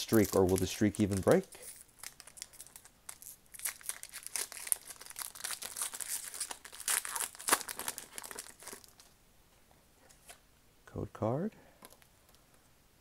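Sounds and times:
foil wrapper crinkling and tearing: 0.0 - 9.1.

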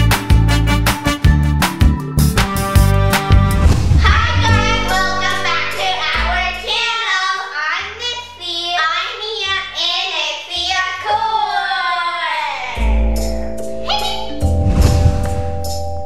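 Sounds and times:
backing music with strong beat: 0.0 - 6.8
girls singing: 4.0 - 6.9.

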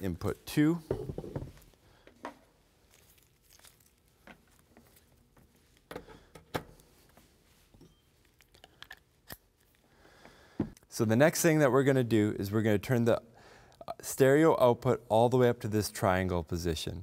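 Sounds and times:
cables rustling: 1.5 - 10.9.

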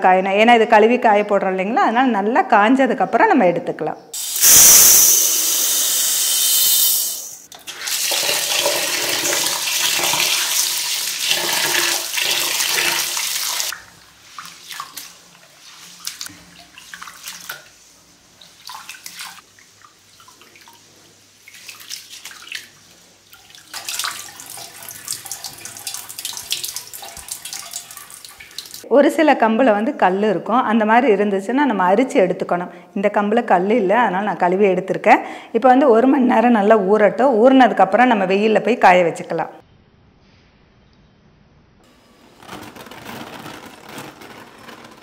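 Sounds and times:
water being poured off: 4.2 - 17.7
water running into bowl: 7.6 - 15.1, 23.3 - 28.8
grains poured into steel bowl: 42.3 - 45.0.

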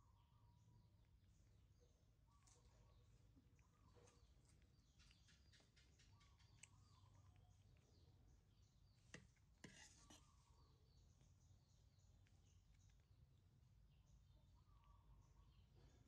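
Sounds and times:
spoon scraping ceramic plate: 9.2 - 10.6.

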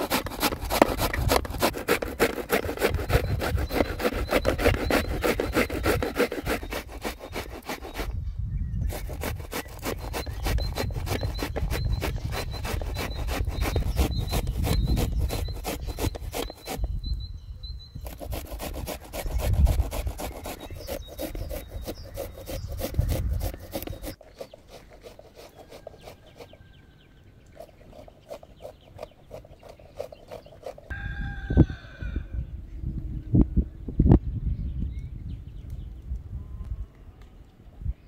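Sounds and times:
rooster crowing: 30.9 - 32.5.

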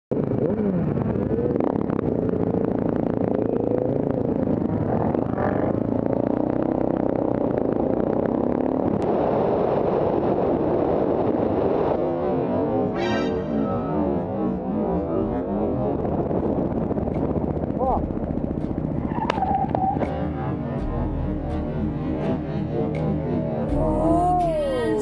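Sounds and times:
motorcycle engine accelerating: 0.1 - 24.9
wind rushing over microphone: 0.2 - 12.9, 15.1 - 20.1.

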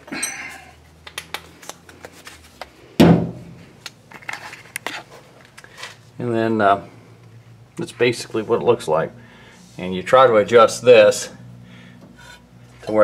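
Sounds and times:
loud thump: 3.0 - 3.6.

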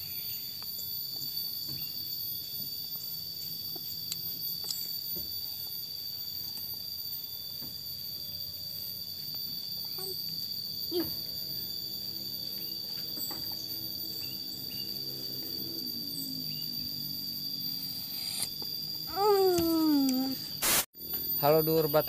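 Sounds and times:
insects chorus: 0.0 - 22.0.

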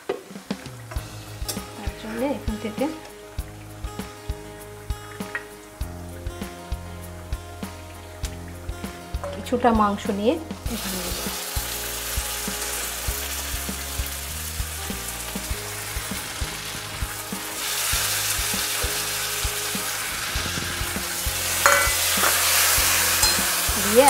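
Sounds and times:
meat sizzling in hot oil: 0.1 - 24.0
spatula scraping a pan: 19.8 - 24.0.

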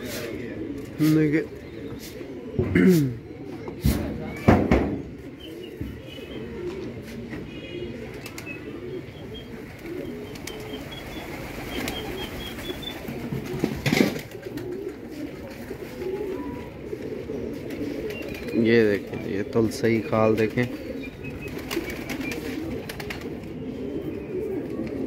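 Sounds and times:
pigeons cooing: 0.0 - 25.0
wings flapping: 9.6 - 16.1, 20.4 - 23.5.

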